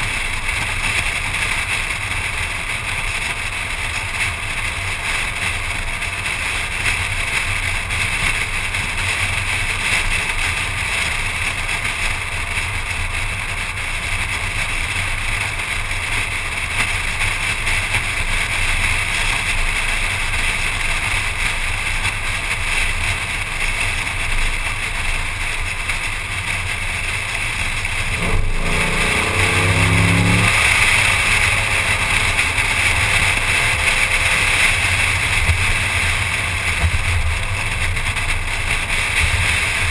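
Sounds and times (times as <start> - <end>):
road rumble: 0.0 - 39.9
wavering humming tone: 28.1 - 33.8.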